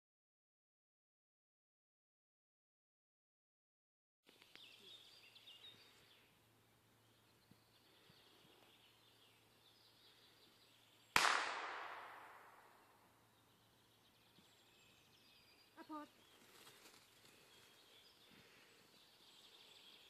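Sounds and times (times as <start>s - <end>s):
faint bird chirps: 4.3s - 11.2s, 12.5s - 20.0s
gunshot echoing through woods: 11.1s - 13.2s.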